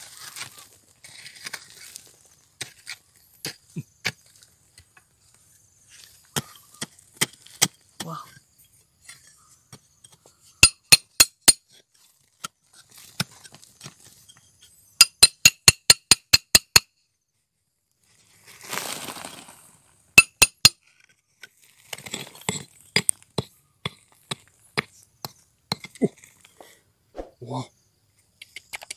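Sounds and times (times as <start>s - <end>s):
steel bar clinking on rock: 10.6s - 11.6s.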